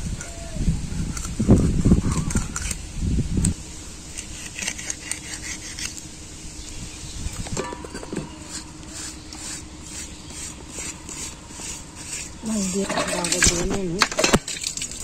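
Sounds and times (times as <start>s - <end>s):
blade scraping fish scales: 4.1s - 6.1s, 7.6s - 15.0s.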